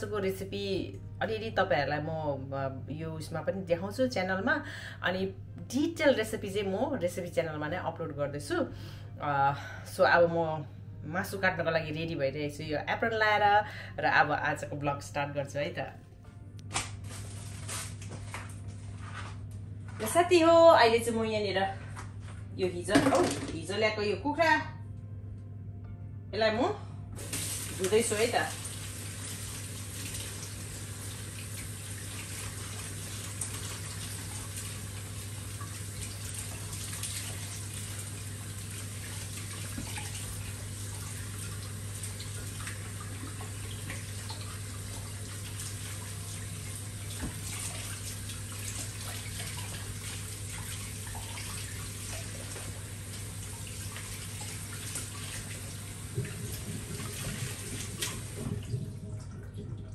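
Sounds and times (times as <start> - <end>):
tap water running into sink: 27.2 - 59.9.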